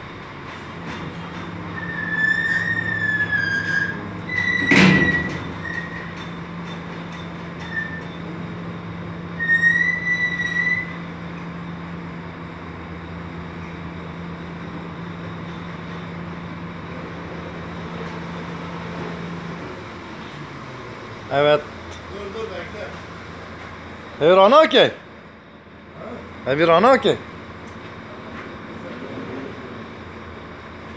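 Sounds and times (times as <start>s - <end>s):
metal squeak: 1.3s - 8.3s, 9.3s - 11.5s.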